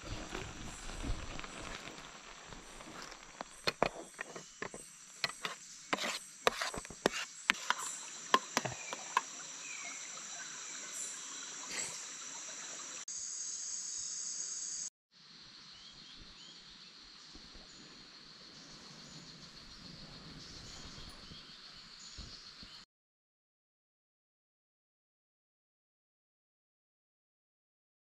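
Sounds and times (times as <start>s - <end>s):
insects buzzing: 0.0s - 22.8s
metal spoon scraping metal tin: 2.8s - 9.2s.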